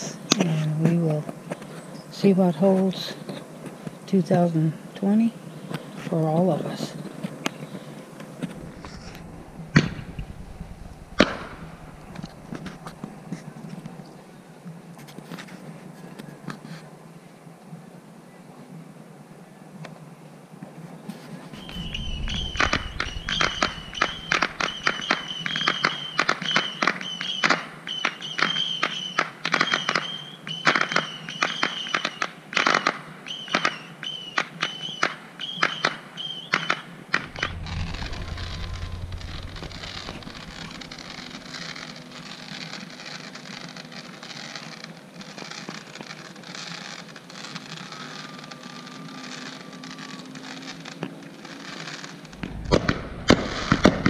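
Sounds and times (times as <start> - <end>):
steady hiss: 1.4 - 17.4, 20.2 - 27.0, 37.1 - 54.0
fireworks popping and crackling: 7.0 - 14.1, 21.1 - 54.0.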